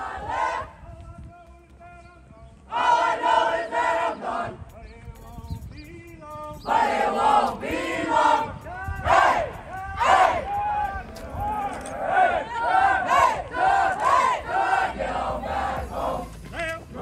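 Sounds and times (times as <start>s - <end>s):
group chanting cadence: 2.7s - 4.6s, 6.7s - 17.0s.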